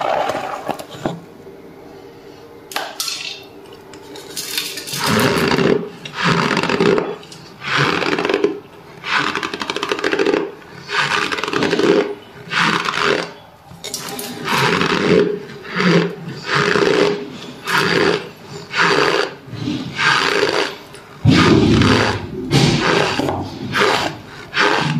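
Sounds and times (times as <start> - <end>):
cornstarch crunching and squeaking: 4.8 - 19.4, 22.8 - 24.9.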